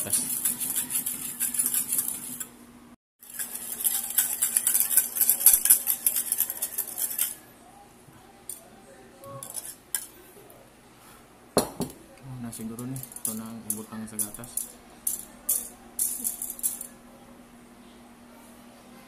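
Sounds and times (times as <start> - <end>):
whisk rattling against bowl: 0.0 - 2.5, 3.2 - 7.4.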